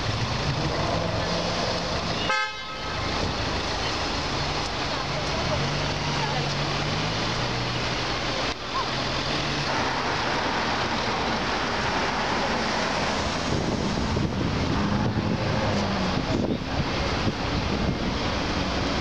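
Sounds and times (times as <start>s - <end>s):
car engine humming: 0.0s - 19.0s
street traffic: 0.0s - 19.0s
car passing close by: 8.7s - 16.7s
wind buffeting microphone: 12.7s - 19.0s.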